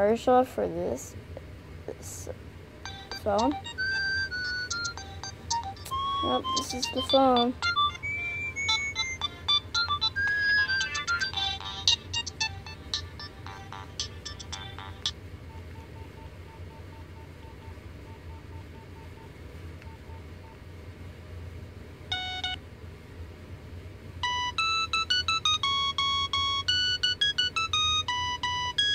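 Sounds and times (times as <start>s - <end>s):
bright ringtone tune: 2.8s - 15.2s, 22.1s - 22.6s, 24.2s - 28.9s
beeping ringtone melody: 2.8s - 19.3s, 22.1s - 22.6s, 24.2s - 28.9s.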